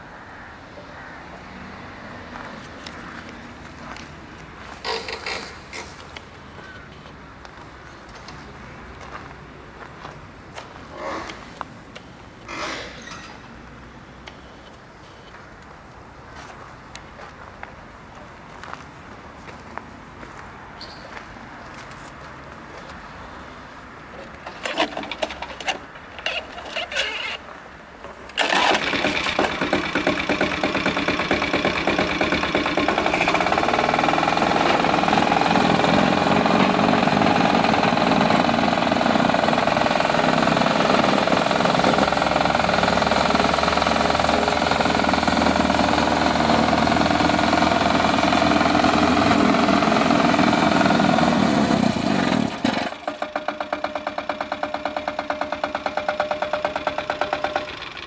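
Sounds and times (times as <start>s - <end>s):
diesel engine running: 28.4s - 58.0s.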